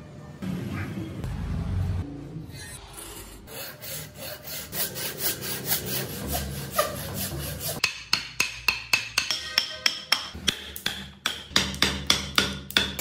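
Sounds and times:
hand saw cutting wood: 3.4 - 7.8.

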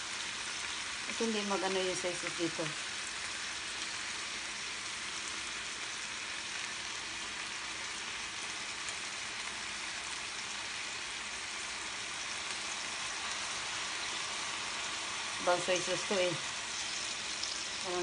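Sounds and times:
chicken sizzling in a pan: 0.0 - 18.0.

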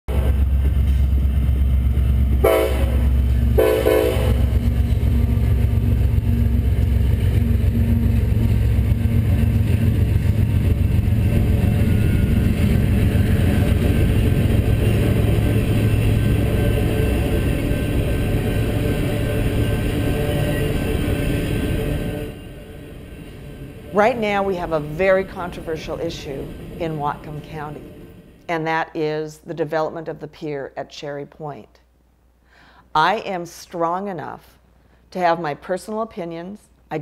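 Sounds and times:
train wheels rumbling on rails: 0.1 - 28.5
train horn blasts: 2.4 - 5.1.

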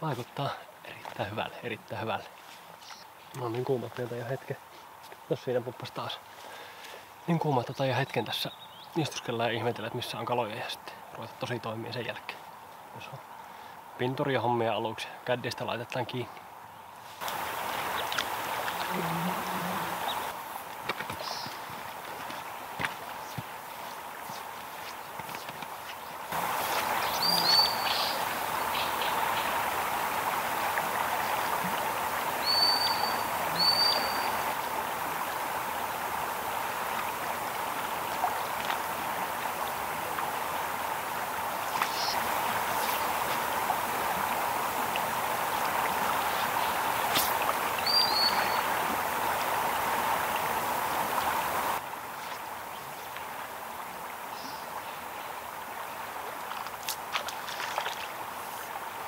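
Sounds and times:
river rapids rushing: 17.2 - 52.2
high bird chirps: 27.0 - 28.9, 32.4 - 34.4, 47.8 - 48.6.

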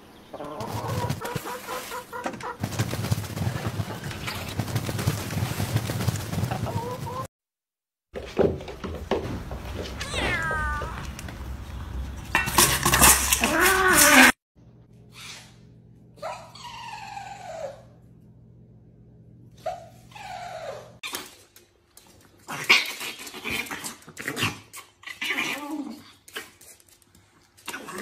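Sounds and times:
chickens squawking: 0.1 - 3.1, 6.4 - 7.3
noisy clatter: 2.3 - 7.3
cat meowing and yowling: 10.0 - 11.1
small dog whining: 16.2 - 18.0, 19.6 - 21.0.

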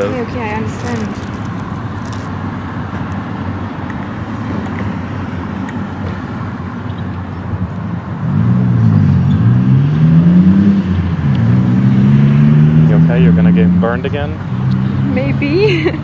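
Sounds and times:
road traffic noise: 0.0 - 16.0
car engine driving past: 8.2 - 15.4.

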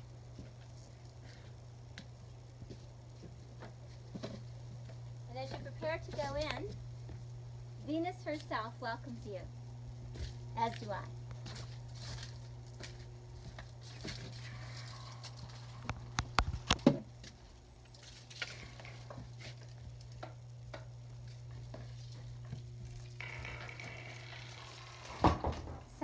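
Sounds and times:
steady low hum: 0.0 - 26.0
footsteps: 0.3 - 8.6, 10.1 - 20.0.

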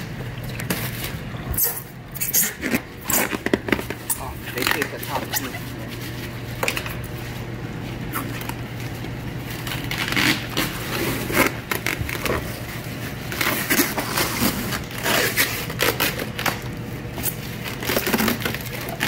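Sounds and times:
plastic bag and tape crinkling: 0.0 - 19.0.

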